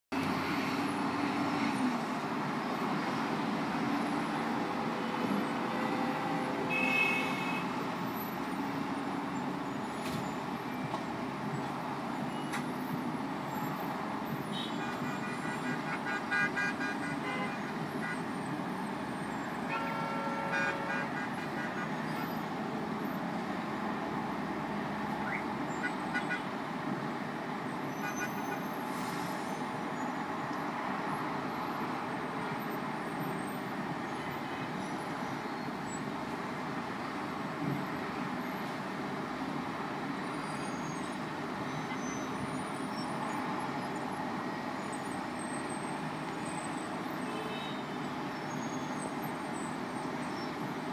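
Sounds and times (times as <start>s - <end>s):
city traffic noise: 0.0s - 50.9s
car horns tooting: 5.6s - 7.7s, 14.5s - 18.4s, 19.6s - 22.4s, 25.3s - 26.5s, 27.9s - 28.7s
short repeated honks: 19.7s - 22.4s.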